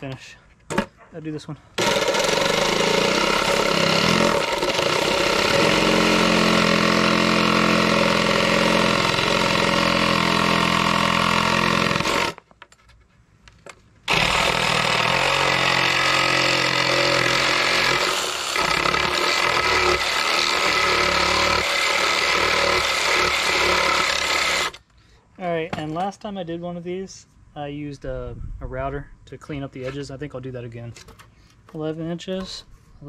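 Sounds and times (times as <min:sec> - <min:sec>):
reciprocating saw cutting wood: 0:01.8 - 0:12.4, 0:14.1 - 0:24.8.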